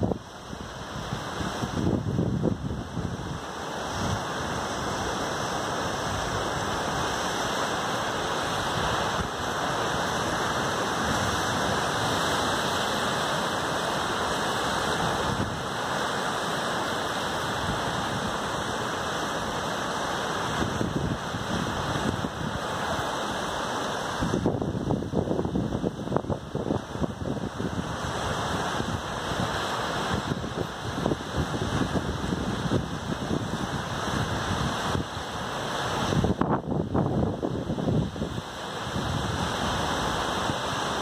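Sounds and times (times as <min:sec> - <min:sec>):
sea surf breaking on rocks: 0:00.0 - 0:41.0.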